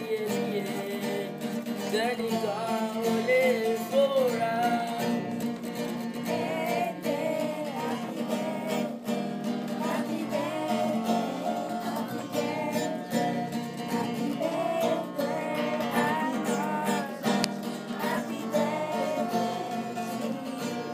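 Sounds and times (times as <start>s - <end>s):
acoustic guitar strumming: 0.0s - 20.9s
children singing: 6.2s - 20.9s.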